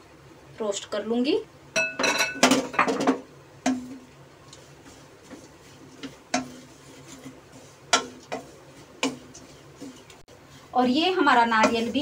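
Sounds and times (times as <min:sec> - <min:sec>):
spatula knocking against pan: 0:02.0 - 0:04.0, 0:05.3 - 0:06.6, 0:07.9 - 0:09.4, 0:11.6 - 0:11.9
spatula scraping pan: 0:03.7 - 0:12.0.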